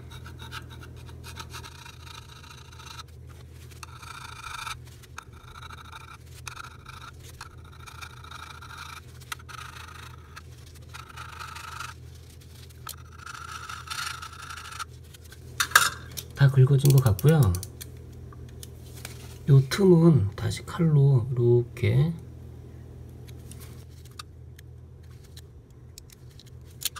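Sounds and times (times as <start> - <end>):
metal putty knife scraping: 0.0 - 12.0.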